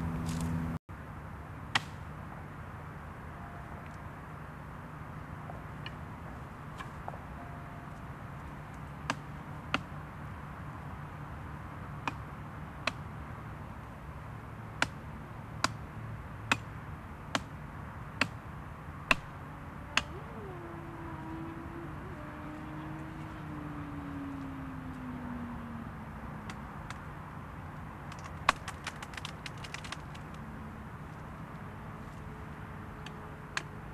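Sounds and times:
steady low hum: 0.0s - 33.9s
faint falling tone: 19.6s - 26.6s.

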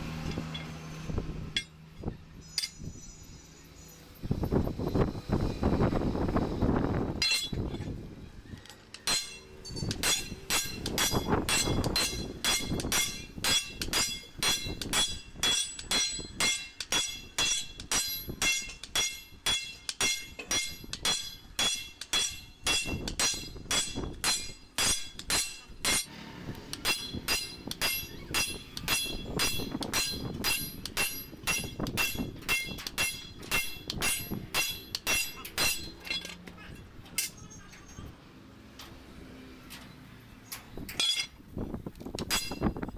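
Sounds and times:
sledgehammer striking steel: 7.2s - 7.7s, 9.0s - 36.4s, 42.2s - 42.9s.

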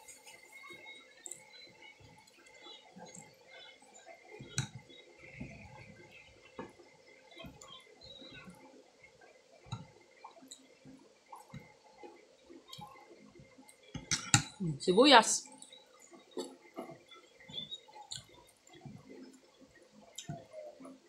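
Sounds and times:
mouth chewing: 17.6s - 18.4s.

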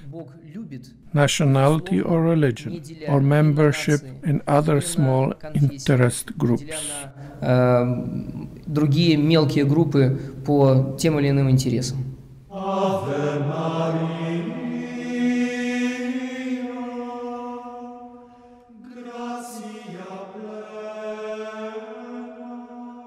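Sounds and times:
slow chanting on held notes: 12.5s - 23.0s.

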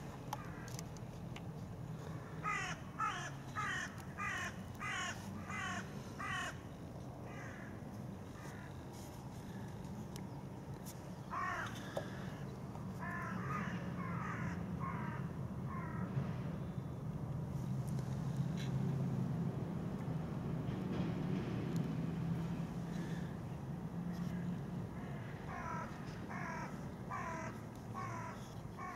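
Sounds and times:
bird harsh crow-like calls: 2.1s - 6.7s, 7.3s - 7.8s, 11.2s - 12.4s, 13.0s - 16.1s, 24.3s - 28.9s.

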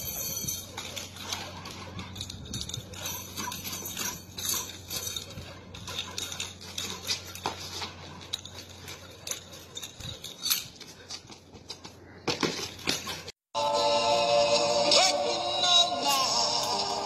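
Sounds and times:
nunchucks clicking and rattling: 0.0s - 11.7s, 12.6s - 13.4s
footsteps on concrete: 10.7s - 13.4s.

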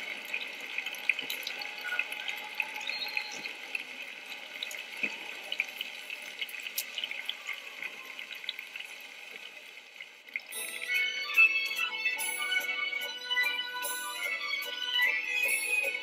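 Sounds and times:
music: 10.5s - 16.0s.

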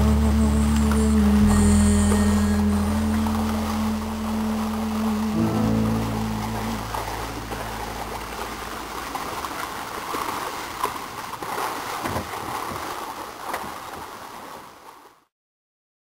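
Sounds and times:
water rushing and splashing: 0.0s - 15.3s.

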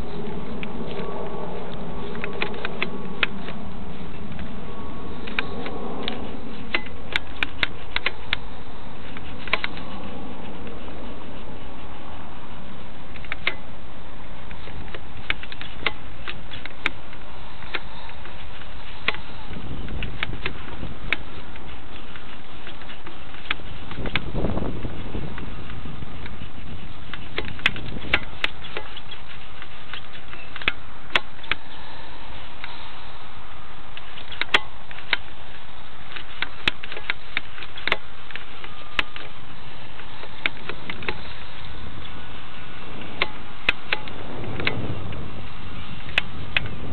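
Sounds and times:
wind buffeting microphone: 0.0s - 46.9s
sharp clicks and taps: 0.2s - 3.6s, 5.2s - 10.0s, 13.1s - 13.6s, 14.5s - 31.6s.

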